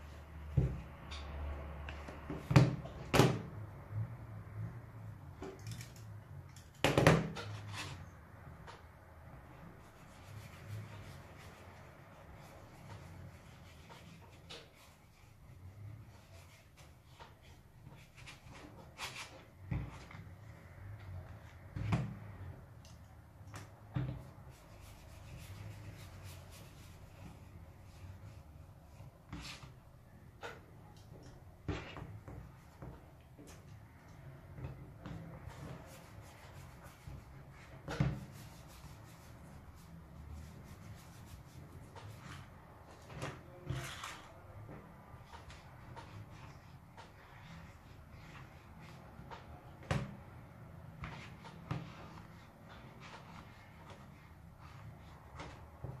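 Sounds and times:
soft handling and rubbing: 7.3s - 56.0s
leather wallet rubbing: 24.5s - 28.4s.

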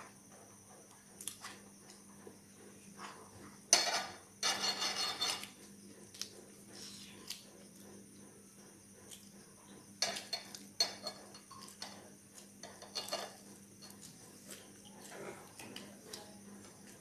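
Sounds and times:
metal spoon clinking on plates: 3.7s - 5.5s, 10.0s - 12.0s, 12.6s - 13.9s.

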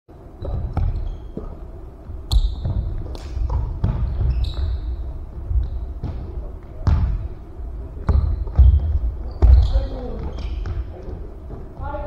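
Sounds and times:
sneakers squeaking: 0.2s - 12.0s
basketball bouncing on wooden floor: 0.4s - 1.5s, 2.3s - 4.9s, 5.6s - 7.2s, 8.0s - 10.8s.

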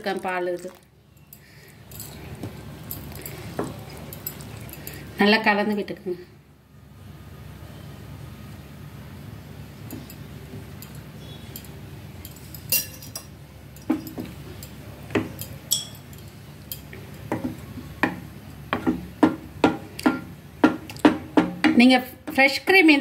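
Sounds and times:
spatula knocking against pot: 17.3s - 22.4s.

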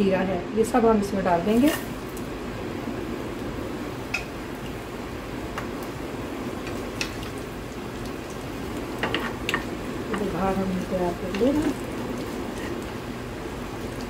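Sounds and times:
spices sizzling in hot oil: 1.2s - 14.0s
wooden spoon stirring in pan: 6.6s - 14.0s.

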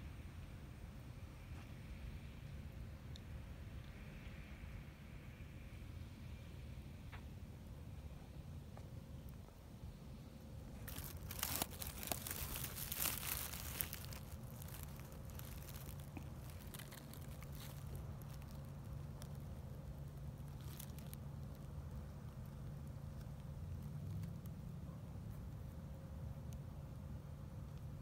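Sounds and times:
steady low hum: 0.0s - 28.0s
dry grass crackling and rustling: 10.6s - 24.6s.

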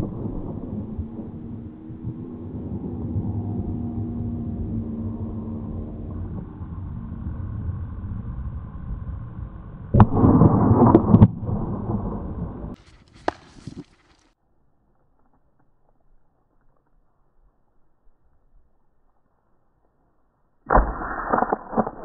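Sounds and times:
steady low rumble: 0.0s - 13.2s.

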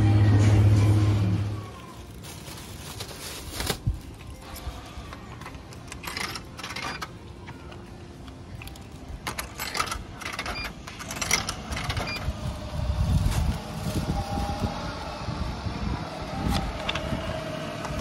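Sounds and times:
coins clinking through vending machine: 5.2s - 7.6s, 8.8s - 12.4s
low rumble: 12.0s - 18.0s.

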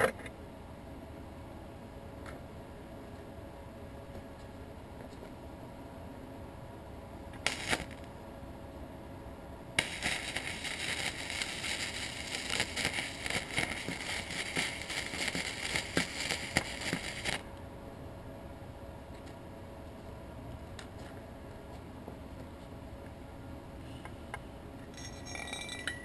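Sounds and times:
welding arc crackling: 7.4s - 8.1s, 9.8s - 17.5s.

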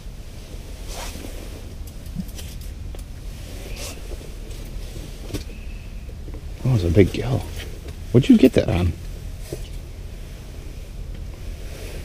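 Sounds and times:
soft rustling: 0.0s - 12.0s
steady low rumble: 0.0s - 12.0s.

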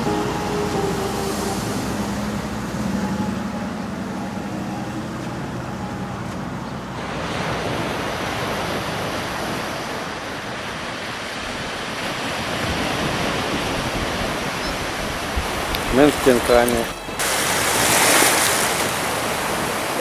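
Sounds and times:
wind: 0.0s - 20.0s
vehicle road noise: 1.8s - 9.6s
waves washing on pebbles: 15.5s - 20.0s.

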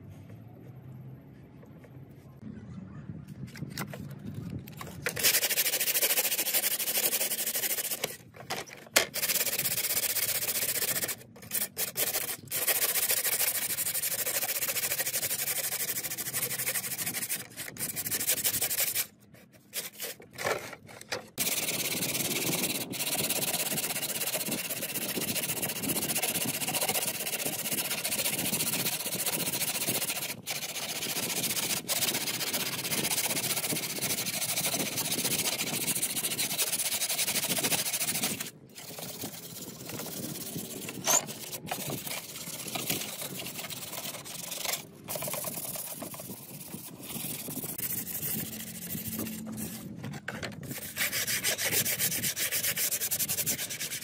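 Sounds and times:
abrasive rubbing like sanding: 5.1s - 8.3s, 9.1s - 20.2s, 21.4s - 54.0s.

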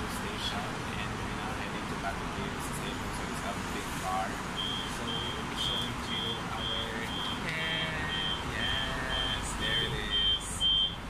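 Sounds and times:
people talking: 0.0s - 10.7s
high electronic beeps: 4.6s - 11.0s.

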